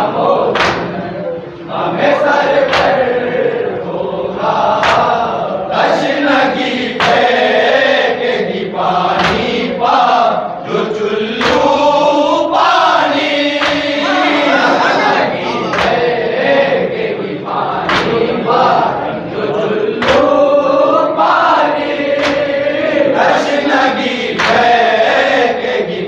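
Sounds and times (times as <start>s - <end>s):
men chanting in unison: 0.0s - 26.0s
hand slaps on chest: 0.6s - 0.9s, 4.8s - 5.1s, 9.2s - 9.5s, 13.6s - 13.9s, 17.9s - 18.2s, 22.2s - 22.5s, 24.4s - 24.6s.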